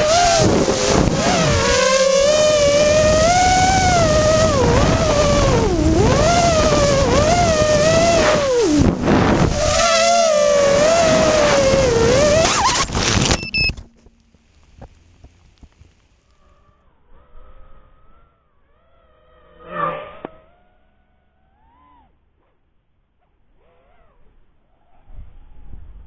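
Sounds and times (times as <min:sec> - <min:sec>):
drone motors whining: 0:00.0 - 0:22.2.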